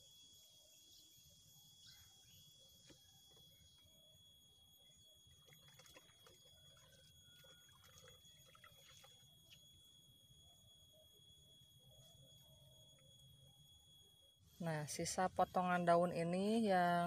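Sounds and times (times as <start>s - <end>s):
water splashing in a bucket: 5.3s - 9.6s.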